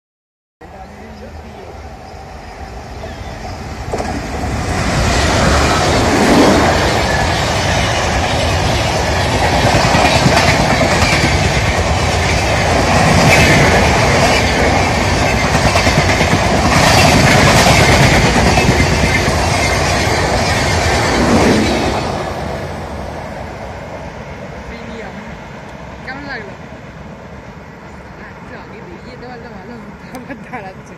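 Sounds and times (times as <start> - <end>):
train passing with rushing rumble: 0.6 - 30.9
wheels clacking over rail joints: 3.8 - 22.1.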